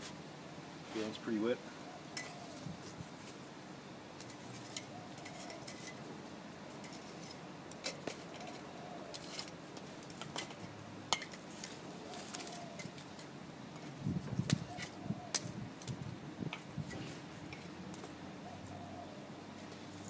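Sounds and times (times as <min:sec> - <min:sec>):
metal rod clinking in fire pit: 0:02.1 - 0:02.5, 0:04.2 - 0:06.1, 0:06.7 - 0:11.7.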